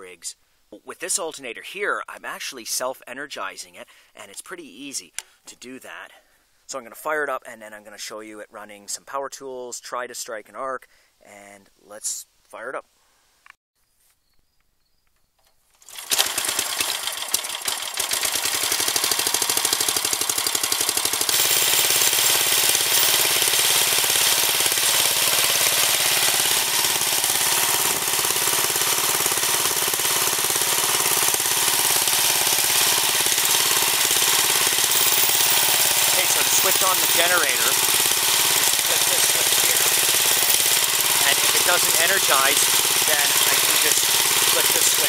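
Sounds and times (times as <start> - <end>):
small engine starting and running: 15.7 - 45.0.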